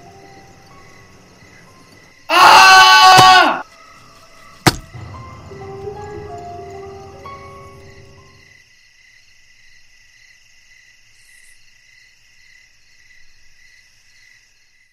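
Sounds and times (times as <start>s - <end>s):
crickets chirping: 0.0s - 14.9s
held musical notes: 4.4s - 8.4s.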